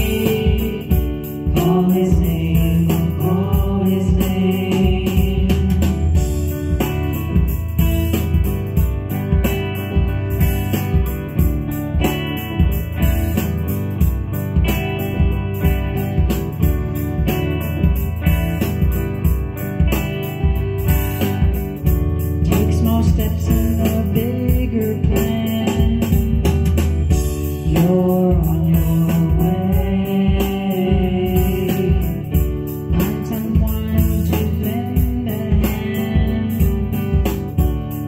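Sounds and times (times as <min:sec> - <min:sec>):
person singing: 0:00.0 - 0:08.3, 0:22.3 - 0:38.0
guitar: 0:00.0 - 0:38.0
steady beat: 0:00.0 - 0:38.0.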